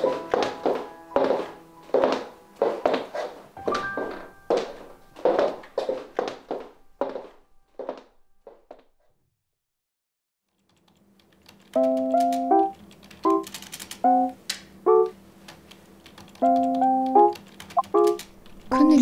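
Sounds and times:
light keyboard background music: 0.0s - 7.2s, 11.4s - 19.0s
computer keyboard typing: 10.6s - 14.4s, 15.6s - 18.6s.

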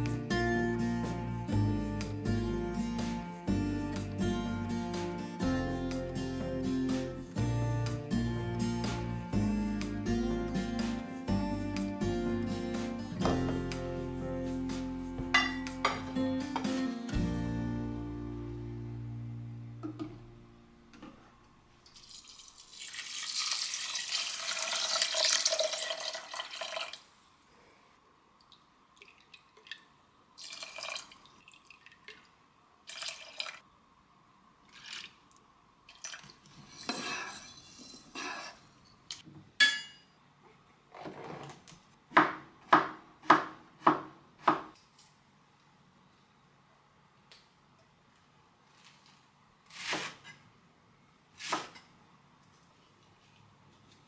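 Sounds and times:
water running from tap: 22.0s - 27.0s
kitchen clinks and handling: 36.5s - 40.2s.

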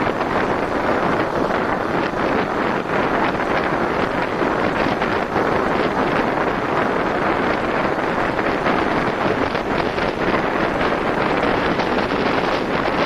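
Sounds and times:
wind rushing over microphone: 0.0s - 13.0s.

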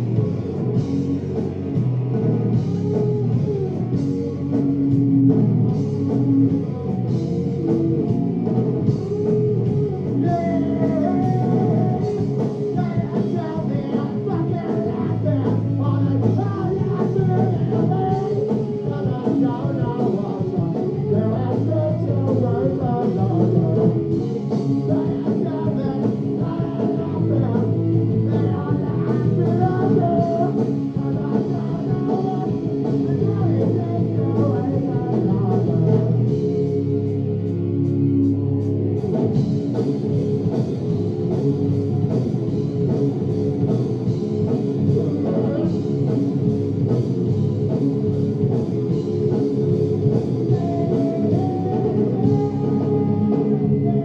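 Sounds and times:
bass guitar: 0.0s - 54.0s
drums: 0.0s - 54.0s
electric guitar: 0.0s - 54.0s
man singing: 8.9s - 36.7s, 44.8s - 46.2s, 50.4s - 54.0s.

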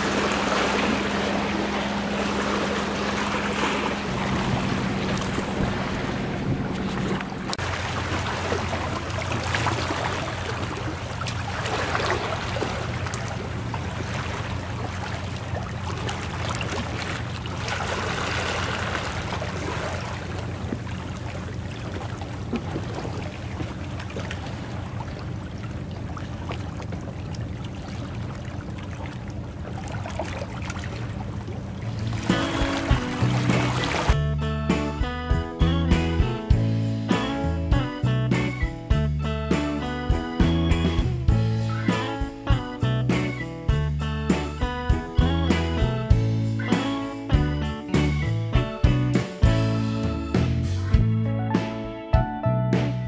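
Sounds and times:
water lapping against concrete: 0.0s - 34.2s.

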